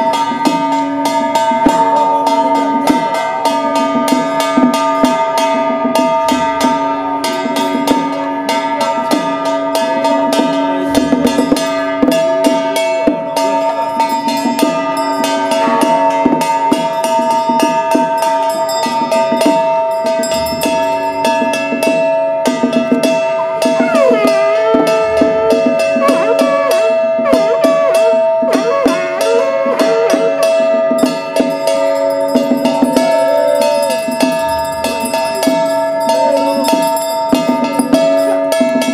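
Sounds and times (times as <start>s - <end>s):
brass hand bell ringing: 0.0s - 38.9s
brief wavering pitched sound: 31.5s - 37.1s.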